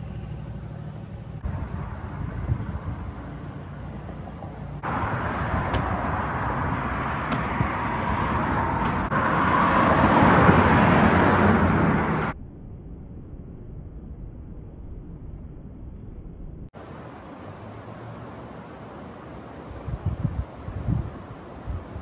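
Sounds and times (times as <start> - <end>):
steady outdoor hiss: 16.7 - 22.0.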